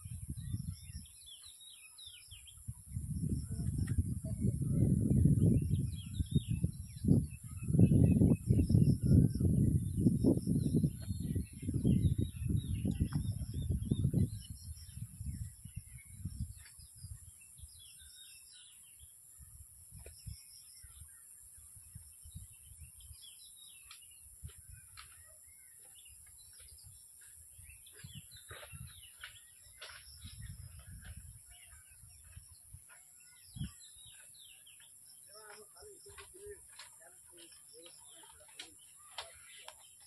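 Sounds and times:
small birds chirping: 0.0 - 40.0.

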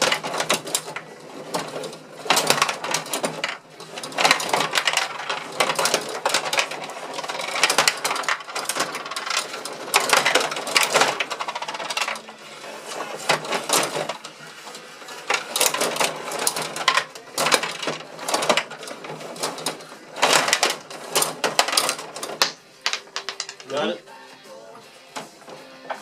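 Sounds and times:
table hockey rapid clicking: 21.2 - 23.7.

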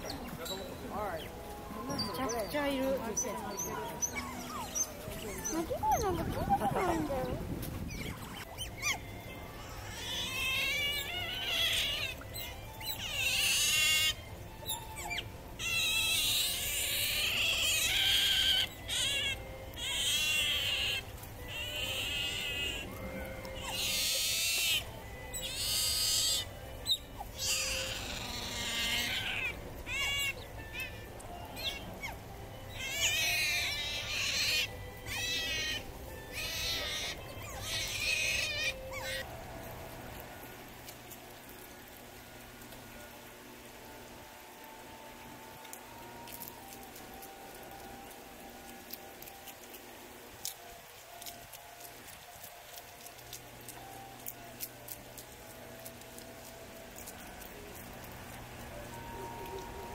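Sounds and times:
otters squeaking and chirping: 0.0 - 39.3.

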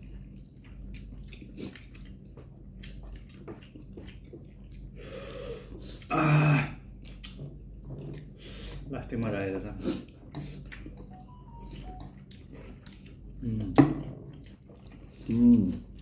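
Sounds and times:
chewing and slurping: 0.0 - 6.1, 6.8 - 16.0
breathy exhale: 5.0 - 5.7.

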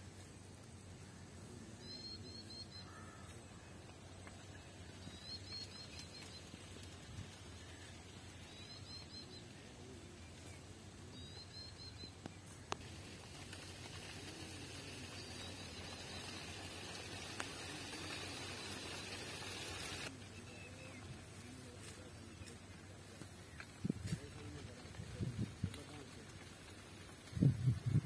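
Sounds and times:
small birds chirping: 0.6 - 28.0
high hiss: 12.5 - 20.1.

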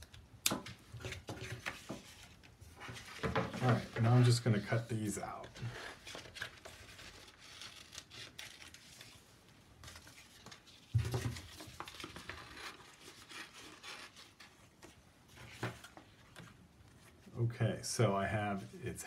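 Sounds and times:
paper rustling: 1.0 - 17.3.

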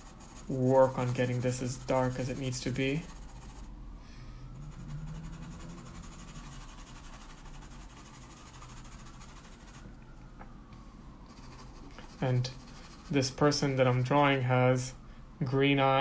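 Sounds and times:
colored pencil scratching on paper: 0.0 - 3.7, 4.6 - 9.9, 11.3 - 14.5.

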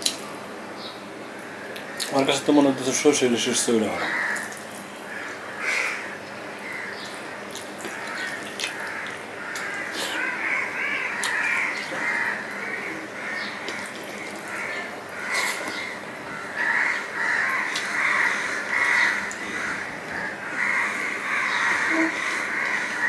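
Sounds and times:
man chewing with wet clicks: 0.0 - 0.3, 1.7 - 2.1, 7.1 - 16.0, 17.2 - 23.0
crows cawing: 3.9 - 7.1, 7.9 - 23.0.

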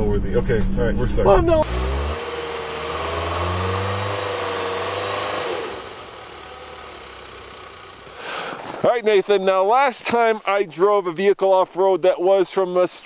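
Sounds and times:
car engine revving: 0.0 - 8.4.

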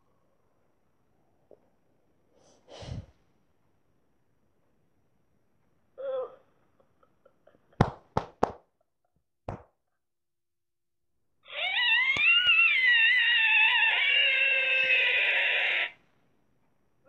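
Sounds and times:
high-pitched squealing cartoon voice: 11.5 - 16.0.

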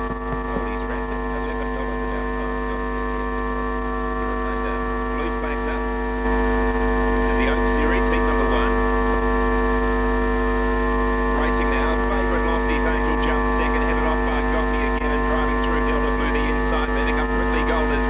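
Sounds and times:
electrical mains hum: 0.0 - 18.0.

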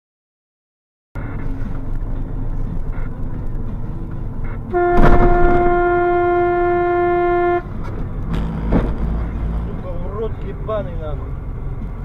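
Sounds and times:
car driving noise: 1.2 - 12.0
car horn blast: 4.7 - 9.4.

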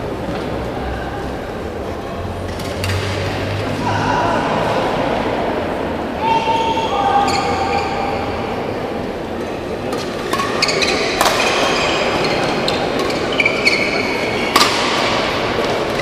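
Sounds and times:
murmur of hall: 0.0 - 16.0
racket hitting shuttlecock: 9.9 - 12.2, 14.4 - 16.0
shoes squeaking on court floor: 10.3 - 14.4.

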